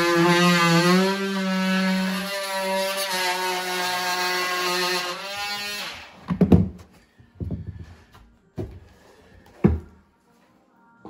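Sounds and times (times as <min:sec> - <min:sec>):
plasterboard thuds and knocks: 0:06.3 - 0:06.8.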